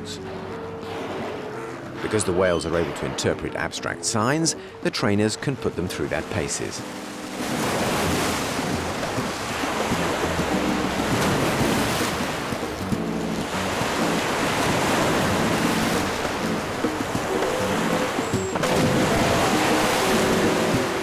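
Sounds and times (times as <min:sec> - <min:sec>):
whales splashing in water: 0:00.8 - 0:03.3, 0:07.1 - 0:21.0.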